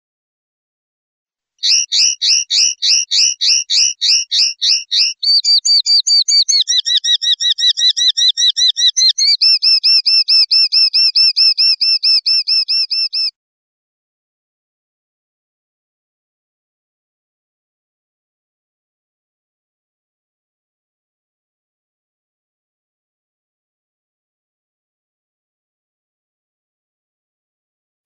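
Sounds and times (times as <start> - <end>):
linnet singing: 1.6 - 13.3.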